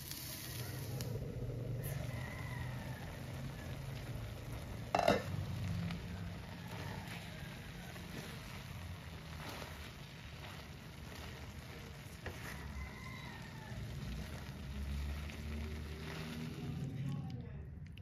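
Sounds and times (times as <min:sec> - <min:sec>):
food sizzling in a pan: 0:00.0 - 0:17.1
spatula scraping a pan: 0:03.6 - 0:16.9.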